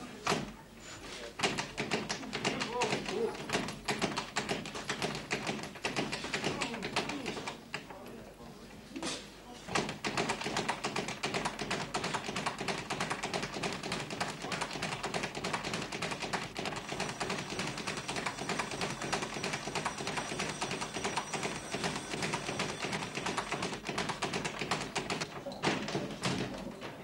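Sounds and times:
rapid light tapping: 0:09.7 - 0:26.5.

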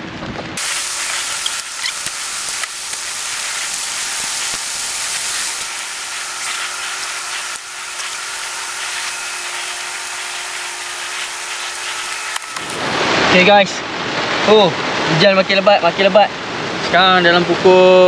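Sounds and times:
rain falling: 0:00.6 - 0:13.3.

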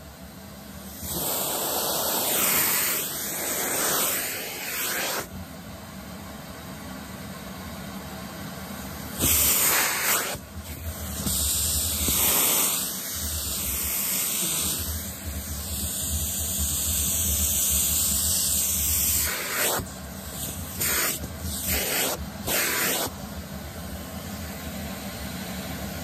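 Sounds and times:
vacuum cleaner running: 0:00.0 - 0:26.0
nozzle sucking hair: 0:00.9 - 0:05.3, 0:09.1 - 0:23.2.

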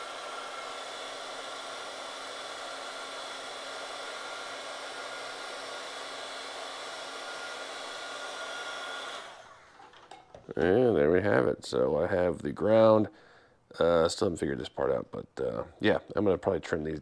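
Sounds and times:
heat gun blowing air: 0:00.0 - 0:09.9.

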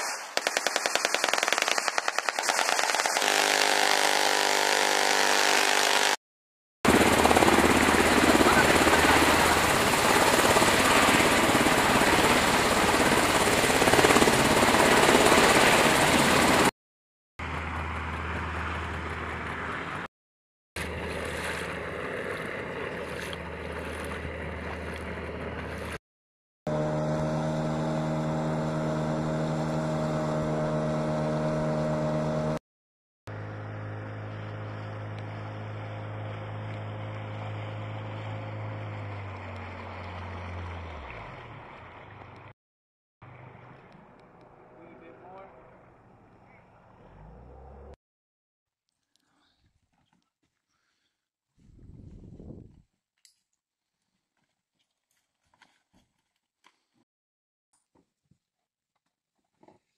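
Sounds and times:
helicopter rotor noise: 0:00.5 - 0:06.2, 0:06.9 - 0:16.7, 0:17.4 - 0:20.1, 0:20.8 - 0:25.8
boat engine drone: 0:03.3 - 0:06.2, 0:06.9 - 0:14.2, 0:17.4 - 0:20.1, 0:20.8 - 0:26.0, 0:26.7 - 0:32.6, 0:33.3 - 0:42.5.

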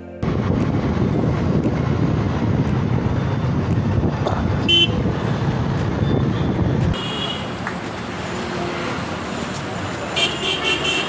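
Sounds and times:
car road noise rumble: 0:00.2 - 0:11.0
car horn toot: 0:04.6 - 0:05.0, 0:06.1 - 0:07.5, 0:10.2 - 0:11.0.

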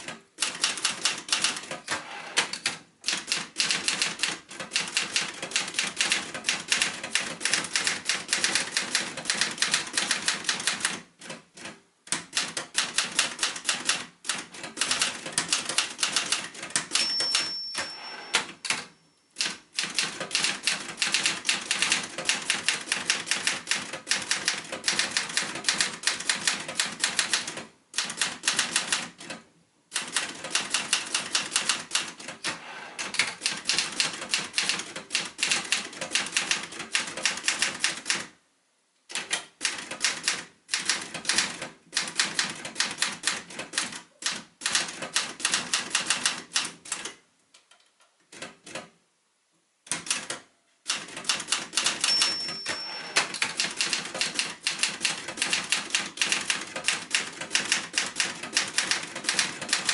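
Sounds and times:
typewriter keys clacking: 0:00.0 - 0:29.4, 0:30.0 - 0:38.3, 0:39.1 - 0:47.1, 0:49.9 - 0:59.9
typewriter bell ring: 0:16.8 - 0:19.5, 0:51.8 - 0:54.1.

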